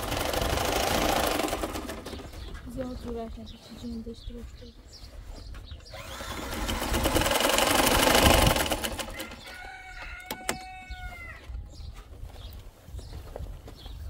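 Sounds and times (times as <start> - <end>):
sewing machine running: 0.0 - 2.2, 6.0 - 9.4
rooster crowing: 9.0 - 11.6.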